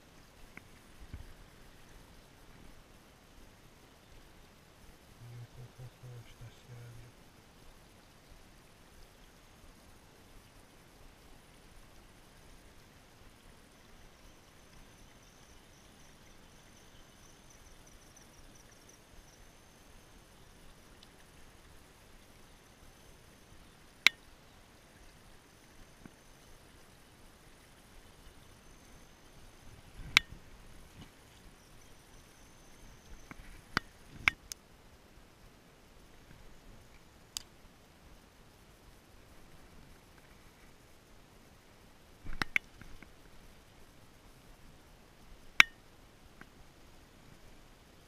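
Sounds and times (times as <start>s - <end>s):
faint insect trill: 0.0s - 48.0s
low outdoor hiss: 0.0s - 48.0s.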